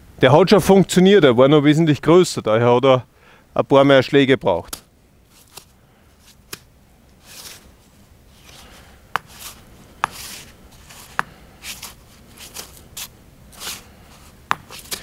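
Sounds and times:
stone and sand scuffing: 0:05.3 - 0:06.6, 0:07.2 - 0:15.0
hammer tapping metal: 0:14.5 - 0:14.7.

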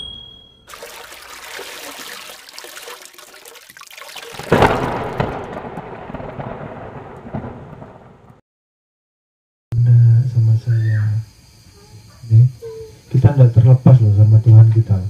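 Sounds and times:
rushing watery noise: 0:00.7 - 0:05.5
boom: 0:04.5 - 0:08.4.

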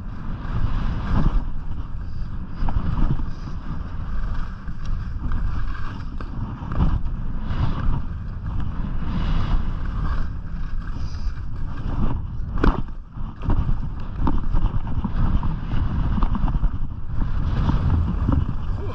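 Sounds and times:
skis carving on snow: 0:00.0 - 0:18.9
wind buffeting microphone: 0:00.0 - 0:18.9.

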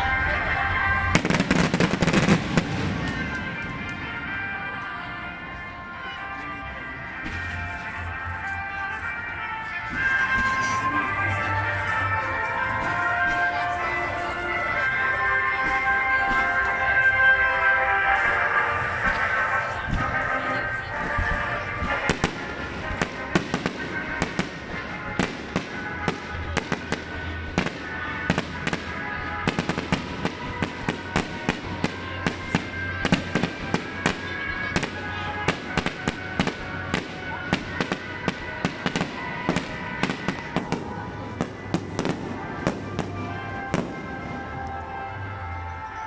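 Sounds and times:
music: 0:00.0 - 0:46.0
fireworks bursting with bangs: 0:01.0 - 0:04.4, 0:20.9 - 0:44.7.

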